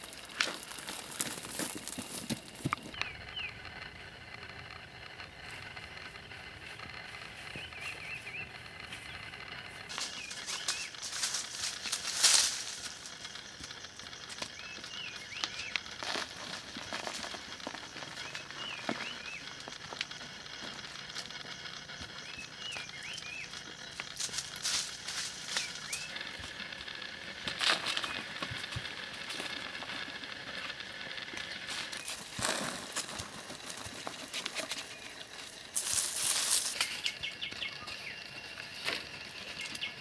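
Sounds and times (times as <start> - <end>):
dry soil poured from pot: 0.0 - 2.9, 32.0 - 36.9
steady high drone: 0.0 - 40.0
small bird chirping: 2.6 - 11.9, 13.0 - 27.0, 33.5 - 40.0.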